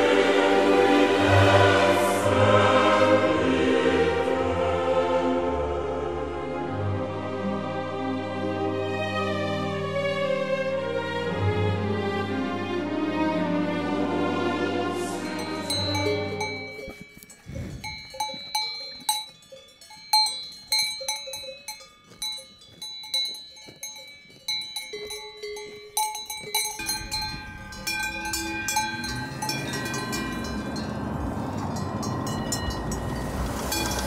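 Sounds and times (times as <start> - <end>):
cowbells clanking: 15.2 - 34.0.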